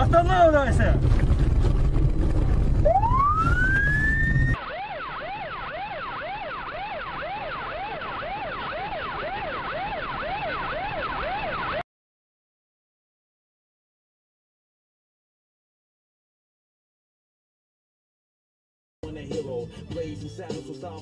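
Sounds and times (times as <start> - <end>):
loud vehicle rumble: 0.8 - 4.6
police siren wailing: 2.8 - 11.8.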